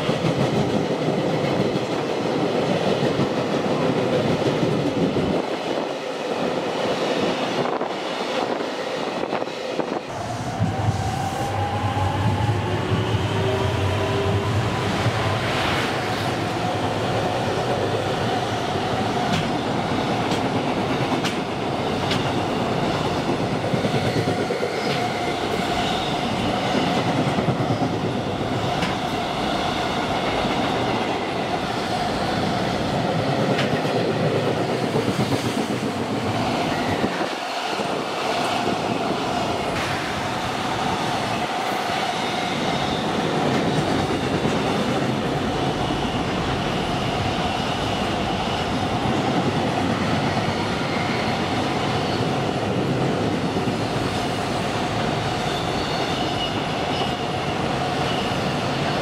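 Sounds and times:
freight train rumbling past: 0.0 - 59.0.

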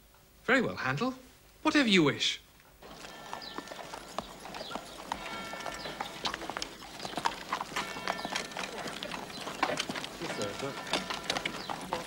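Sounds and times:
horse hooves clip-clopping: 2.7 - 12.0.

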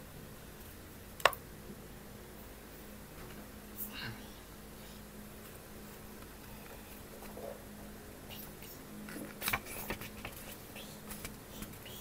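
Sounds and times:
faint steady hum: 0.0 - 12.0
book pages rustling: 9.1 - 11.8.

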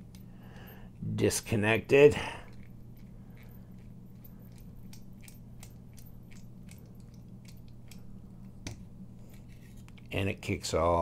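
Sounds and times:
screwdriver clicking: 4.5 - 8.8.

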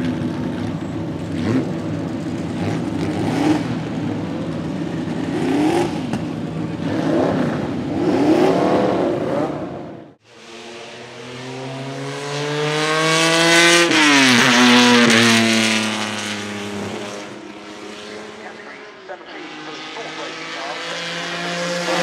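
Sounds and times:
car engine revving: 0.6 - 22.0
car accelerating past: 6.8 - 22.0.

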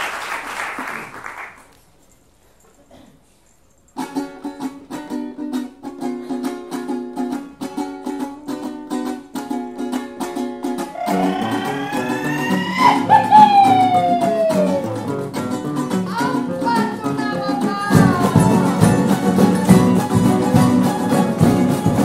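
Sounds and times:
applause: 0.0 - 1.9
strummed guitars and bandurrias: 4.0 - 22.0.

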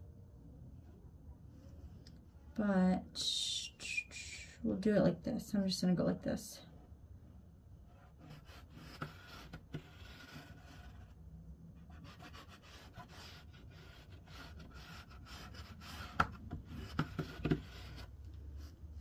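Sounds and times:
chalk scratching on fabric: 7.9 - 11.1, 11.9 - 18.7.

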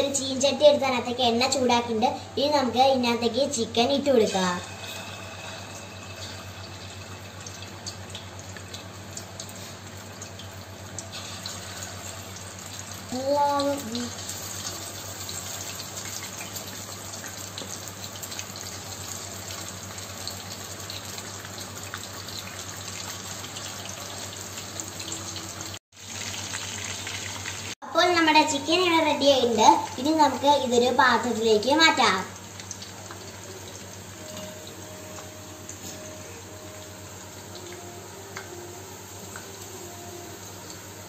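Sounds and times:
chicken sizzling in hot oil: 0.0 - 41.0.

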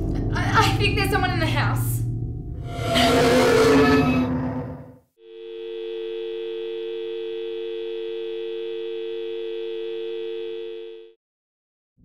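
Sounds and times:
telephone dial tone: 5.2 - 11.2.

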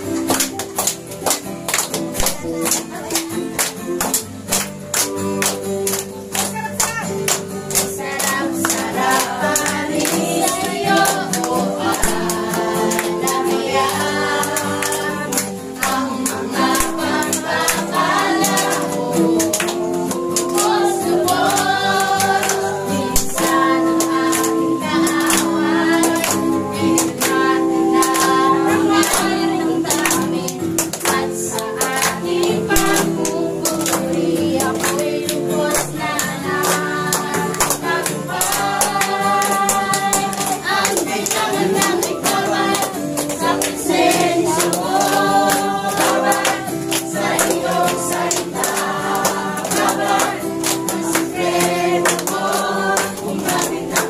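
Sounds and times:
group singing worship song: 0.0 - 54.0
hand clapping: 0.0 - 54.0
instrumental accompaniment: 0.0 - 54.0.

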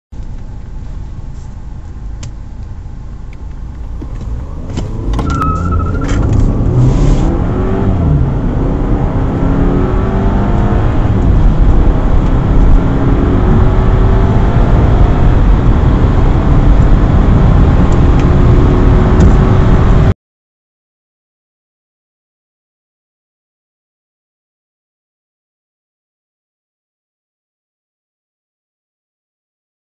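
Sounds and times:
car engine accelerating: 0.2 - 20.1.

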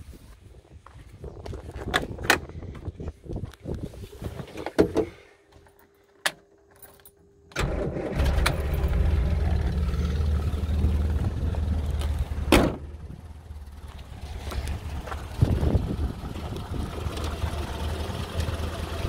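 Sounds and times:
car engine starting and idling: 7.5 - 19.0.

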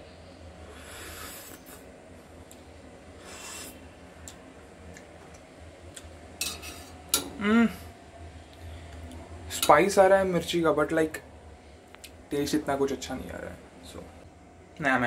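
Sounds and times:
person humming mm: 7.4 - 7.9.

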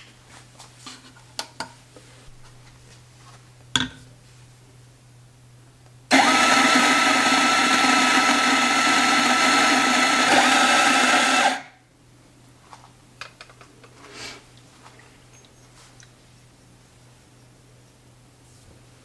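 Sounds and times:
coffee grinder whirring: 6.1 - 11.8.

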